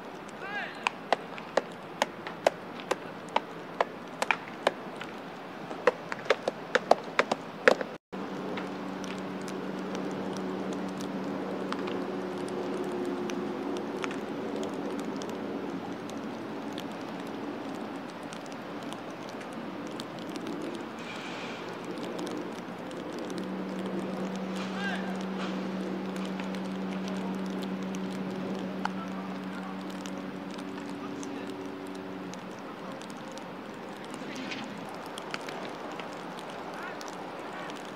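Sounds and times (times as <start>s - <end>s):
low mechanical hum: 8.2s - 37.8s
faint ticks: 8.4s - 37.9s.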